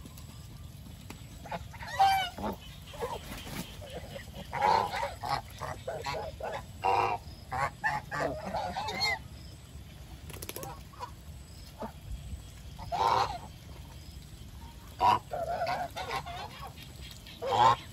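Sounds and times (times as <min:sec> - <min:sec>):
geese honking: 0:01.4 - 0:09.2, 0:12.8 - 0:13.6, 0:14.9 - 0:17.9.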